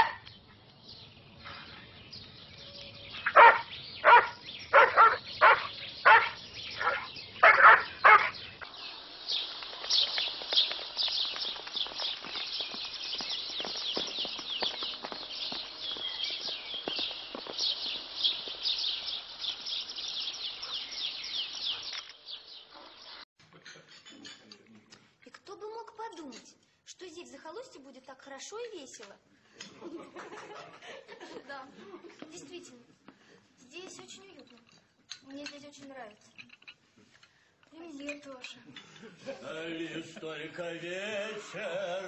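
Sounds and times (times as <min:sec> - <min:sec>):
dog barking: 0:00.0 - 0:00.2, 0:03.3 - 0:08.4
dense high-pitched chirping: 0:02.1 - 0:23.2.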